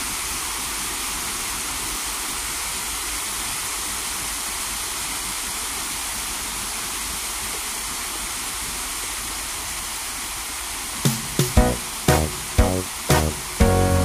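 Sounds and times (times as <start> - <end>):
steady rushing hiss: 10.5 - 14.0
musical notes: 11.1 - 14.0.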